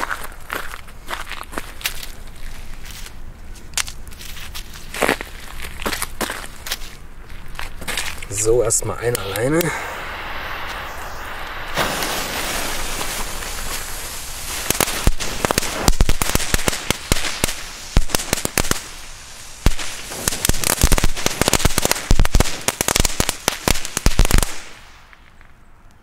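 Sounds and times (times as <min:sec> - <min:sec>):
firework crackling pops: 0:07.6 - 0:25.5
fuse hissing fizz: 0:09.2 - 0:16.0.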